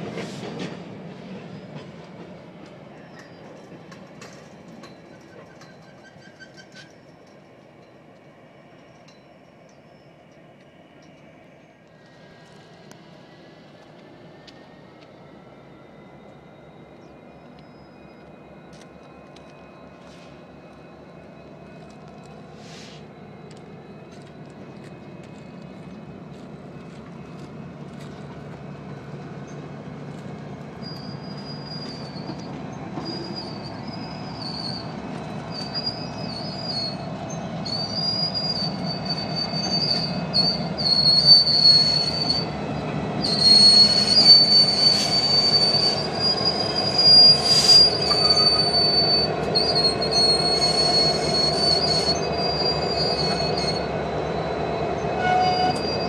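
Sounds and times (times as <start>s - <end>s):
freight train rolling past: 0.0s - 56.0s
train wheels squealing: 0.0s - 56.0s.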